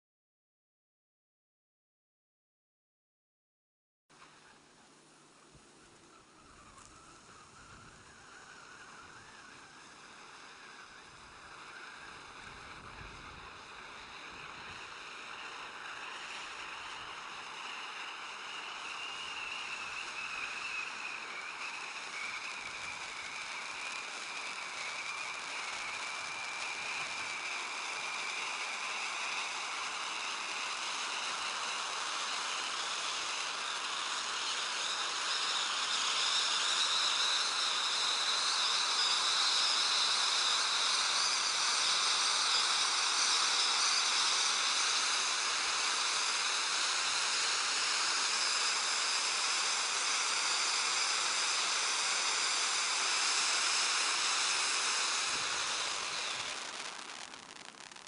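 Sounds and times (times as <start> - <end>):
firework fountain hissing: 4.2 - 58.0.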